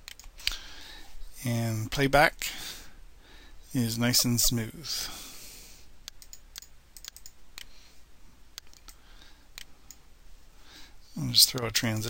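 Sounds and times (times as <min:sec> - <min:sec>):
mouse and keyboard clicks: 0:06.1 - 0:07.7, 0:08.6 - 0:09.0.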